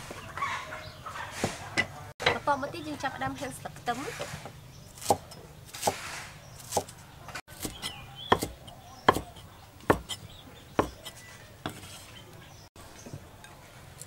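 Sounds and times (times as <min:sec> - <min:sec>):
cleaver chopping on wooden board: 0:04.1 - 0:06.9, 0:07.5 - 0:12.0.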